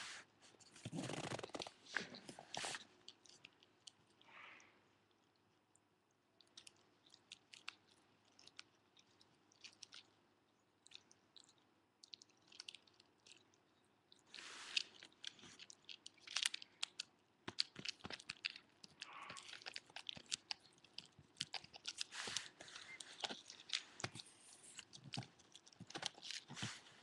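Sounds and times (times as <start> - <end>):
dog chewing a bone: 15.1 - 26.8.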